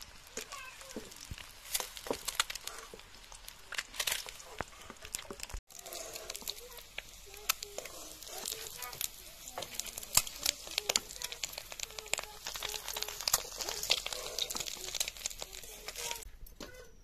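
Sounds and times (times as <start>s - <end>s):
hot oil crackling in a wok: 0.0s - 16.3s
metal spatula in a wok: 5.4s - 16.3s.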